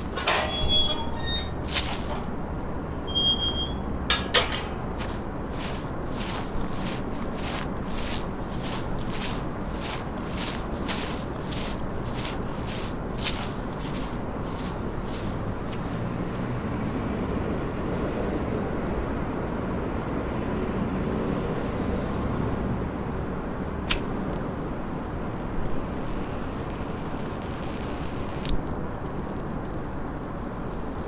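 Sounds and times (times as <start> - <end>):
low rumbling ambience: 0.0 - 16.5
sharp click: 23.9 - 24.4.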